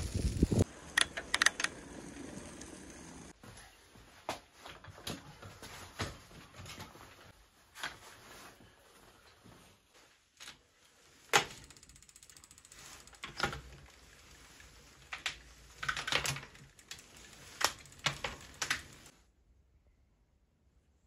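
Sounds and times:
gear hub mechanical clicks: 0.0 - 3.3, 11.3 - 19.1
fast ticking of gear hub: 11.5 - 14.3, 16.1 - 19.1.

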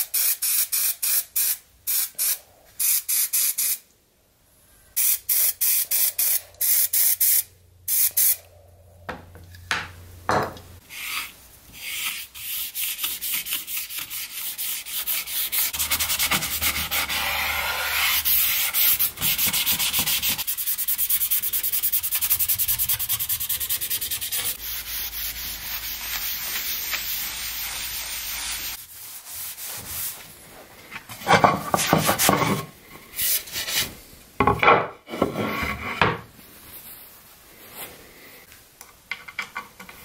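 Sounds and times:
brush scrubbing wood: 11.8 - 30.3.

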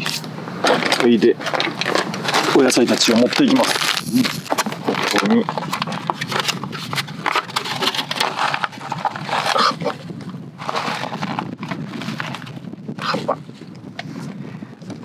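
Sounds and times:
leaves rustling: 0.0 - 13.5
plastic bag crinkling: 0.6 - 10.0.

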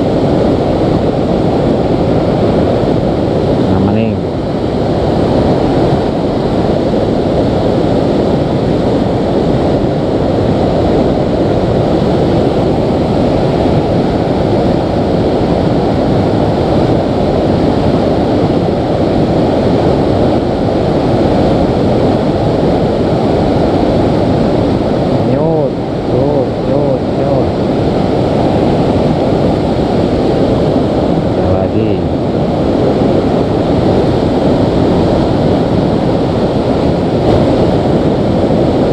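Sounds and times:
river rushing over rapids: 0.0 - 38.9.

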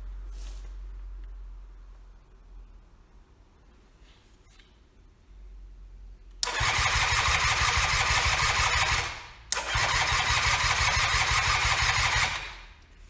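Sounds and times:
electric starter cranking engine: 6.4 - 12.6.

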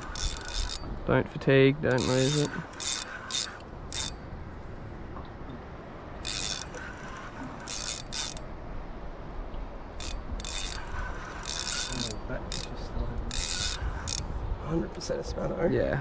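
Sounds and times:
fishing reel drag buzzing: 0.0 - 1.0, 1.9 - 4.3, 6.2 - 8.5, 10.0 - 14.6.

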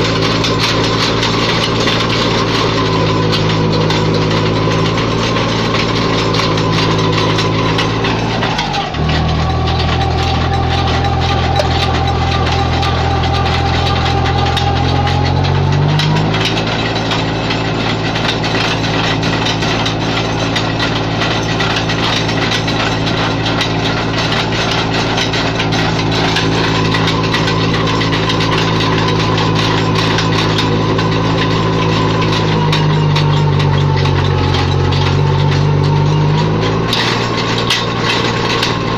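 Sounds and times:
tractor engine running: 0.0 - 38.9.

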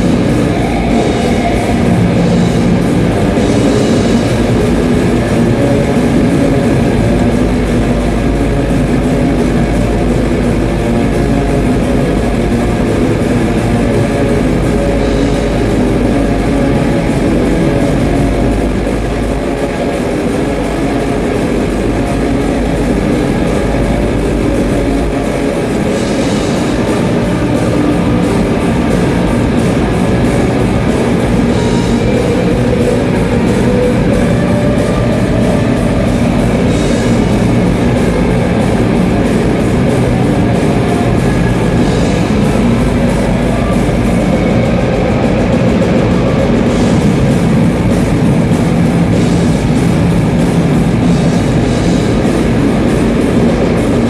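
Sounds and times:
bass guitar: 0.0 - 54.0
distorted electric guitars: 0.0 - 54.0.

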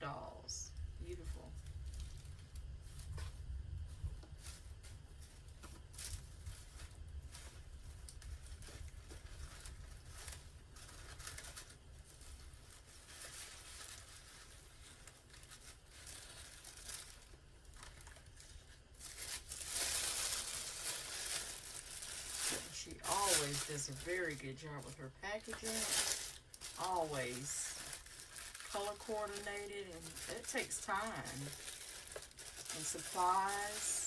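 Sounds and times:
soft paper rustling: 1.1 - 34.0
tissue paper crinkling: 1.4 - 34.0.

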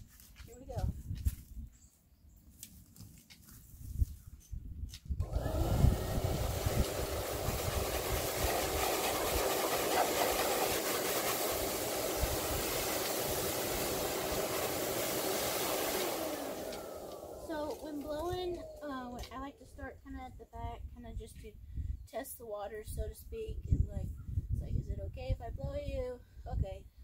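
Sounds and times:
dog grooming blower running: 5.2 - 19.1.

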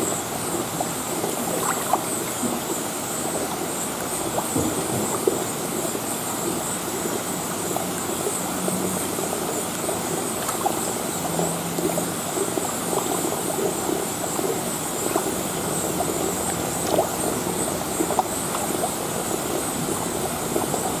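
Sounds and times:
running water in fish tank: 0.0 - 21.0
fish splashing at surface: 1.0 - 21.0.

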